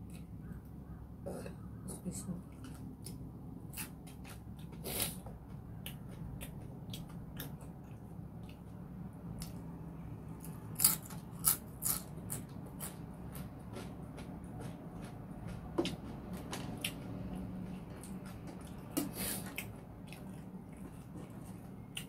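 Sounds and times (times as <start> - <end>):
chewing with wet mouth clicks: 5.7 - 9.6, 18.0 - 22.0.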